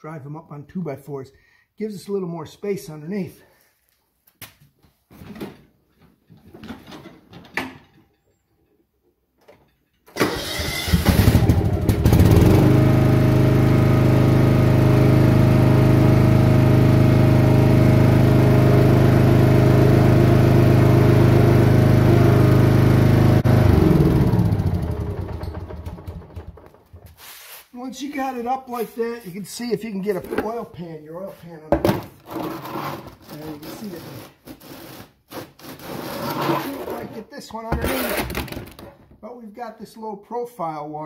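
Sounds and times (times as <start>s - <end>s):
lawn tractor engine running: 10.2s - 27.0s.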